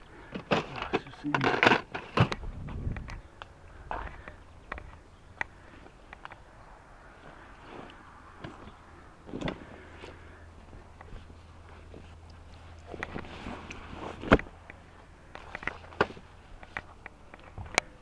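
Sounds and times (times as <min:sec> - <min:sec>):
handling knocks and clicks: 0:00.2 - 0:05.5, 0:11.8 - 0:18.0.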